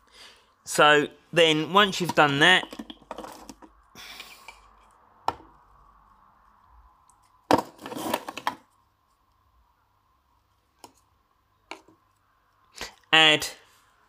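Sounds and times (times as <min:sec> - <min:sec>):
faint steady hum: 0:00.0 - 0:14.0
hard objects knocking and clattering: 0:01.9 - 0:03.8, 0:05.2 - 0:05.5, 0:07.5 - 0:08.7.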